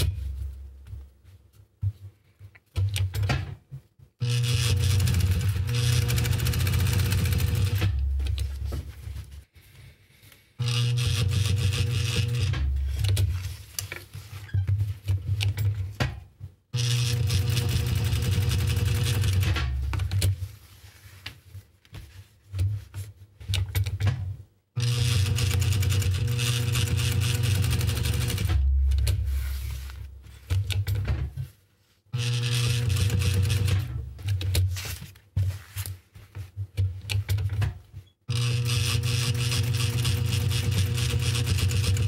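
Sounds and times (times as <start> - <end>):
sewing machine stitching: 4.2 - 8.5, 10.6 - 13.4, 16.8 - 20.3, 24.8 - 29.2, 32.2 - 34.0, 38.3 - 42.0.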